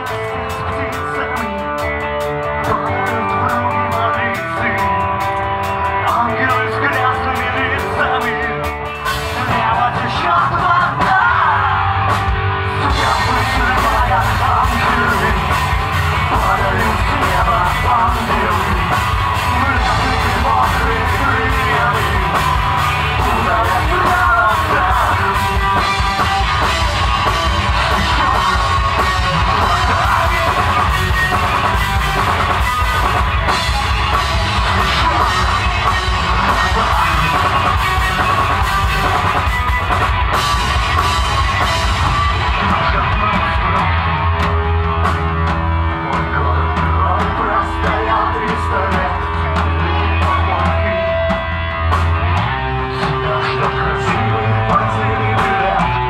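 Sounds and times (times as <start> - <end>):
live rock band playing: 0.0 - 56.0
vocals: 0.0 - 56.0.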